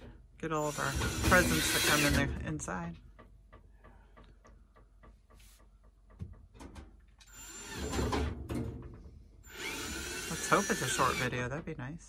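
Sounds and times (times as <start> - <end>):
cordless drill driving screw: 0.7 - 2.3, 7.3 - 8.0, 9.5 - 11.4.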